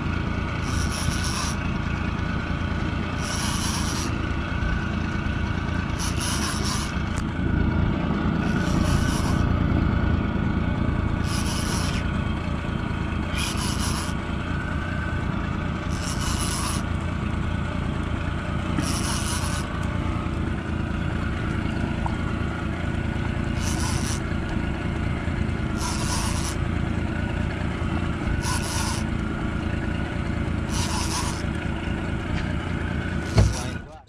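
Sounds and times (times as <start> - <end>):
fishing reel rasping: 0.6 - 1.7, 3.2 - 4.2, 5.9 - 7.2, 8.4 - 9.5, 11.2 - 12.1, 13.3 - 14.2, 15.9 - 16.9, 18.8 - 19.7, 23.5 - 24.3, 25.8 - 26.6, 28.4 - 29.1, 30.7 - 31.5.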